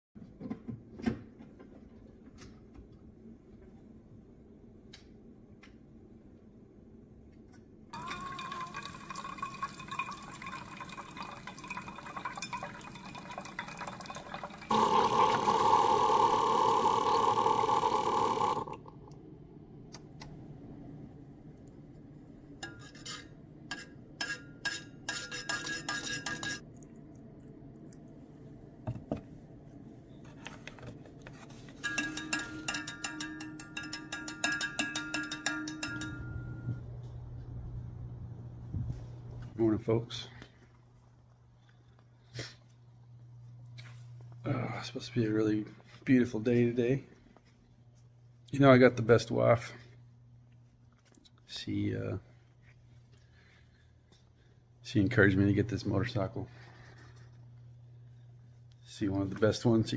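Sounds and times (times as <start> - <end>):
spoon clinking metal tumbler: 8.0 - 14.6, 22.6 - 26.6, 31.7 - 36.7
coffee streaming into cup: 8.0 - 18.9
coffee maker pump humming: 8.0 - 19.0.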